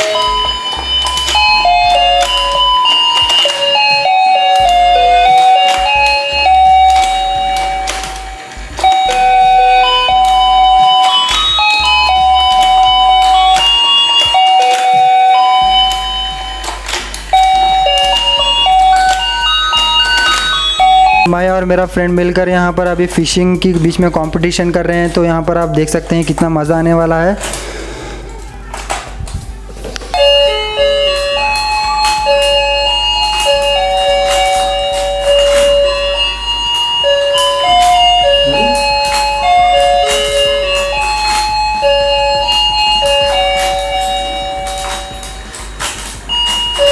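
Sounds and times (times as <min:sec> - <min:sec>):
toy electronic beeping tune: 0:00.0 - 0:21.3, 0:30.1 - 0:45.6.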